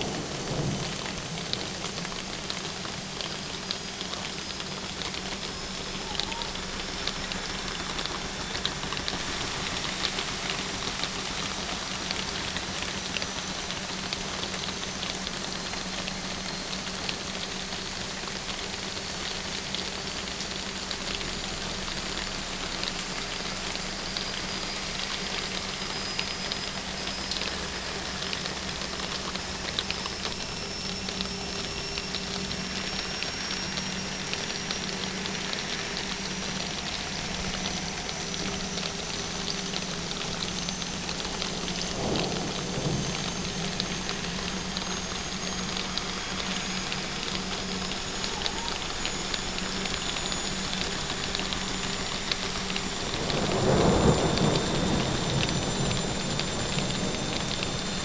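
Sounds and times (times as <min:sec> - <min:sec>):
thunder rumbling: 0:00.0 - 0:13.0, 0:26.7 - 0:58.0
heavy rain: 0:00.0 - 0:58.0.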